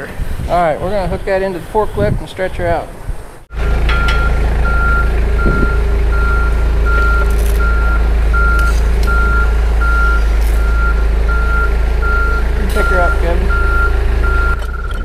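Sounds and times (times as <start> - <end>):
forklift engine running: 3.4 - 15.0
backup alarm beeping: 3.5 - 15.0.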